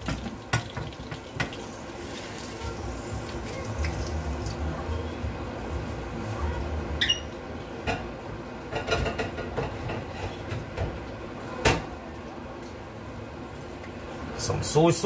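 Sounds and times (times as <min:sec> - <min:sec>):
kitchen items knocking and clicking: 0:00.0 - 0:01.6
brief squeak: 0:07.0 - 0:07.3.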